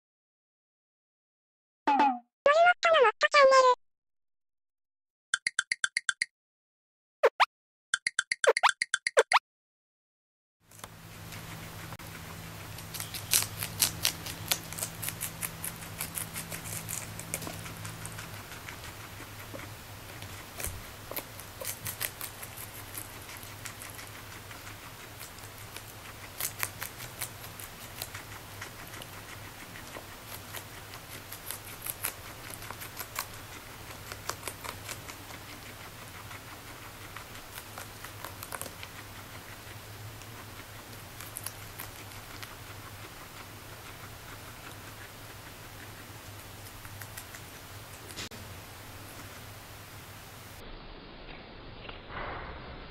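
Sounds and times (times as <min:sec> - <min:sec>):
guinea pig chewing lettuce: 0:10.7 - 0:50.6, 0:51.2 - 0:52.0.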